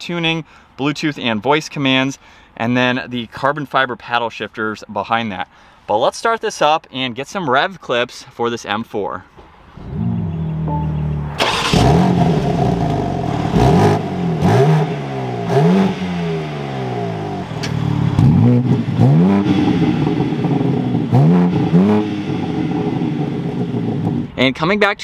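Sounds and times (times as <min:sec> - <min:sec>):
car engine idling and revving: 0:09.8 - 0:24.4.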